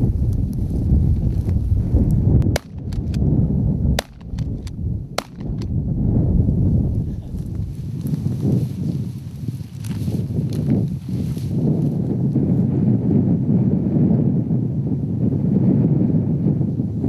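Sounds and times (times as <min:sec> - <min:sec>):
wind buffeting microphone: 0:00.0 - 0:17.0
shotgun shots: 0:02.5 - 0:03.2, 0:04.0 - 0:04.5, 0:05.2 - 0:05.7.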